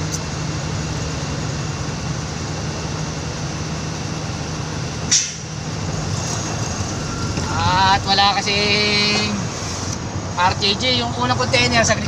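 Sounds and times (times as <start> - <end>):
diesel truck engine idling: 0.0 - 12.0
short air hiss: 5.1 - 5.5.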